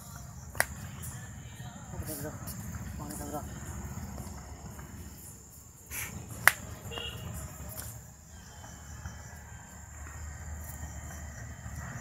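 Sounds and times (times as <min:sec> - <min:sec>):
low outdoor rumble: 0:00.0 - 0:12.0
high-pitched insect buzz: 0:02.0 - 0:09.3.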